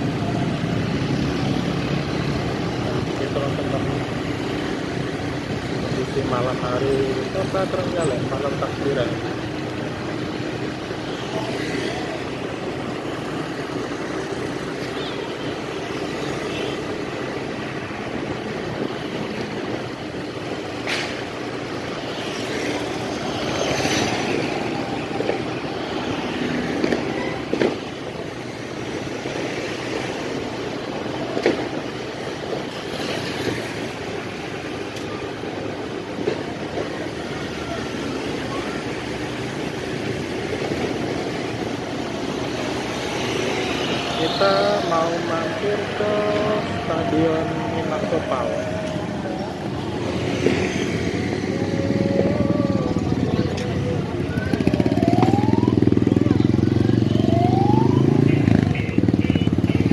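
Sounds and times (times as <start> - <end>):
vehicle road and engine noise: 0.0 - 59.9.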